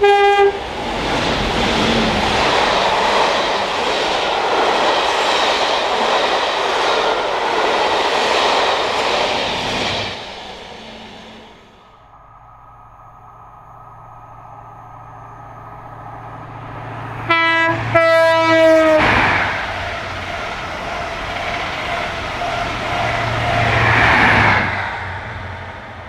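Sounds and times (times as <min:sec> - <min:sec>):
train horn: 0:00.0 - 0:00.6, 0:17.2 - 0:19.4
train passing at speed: 0:00.0 - 0:26.0.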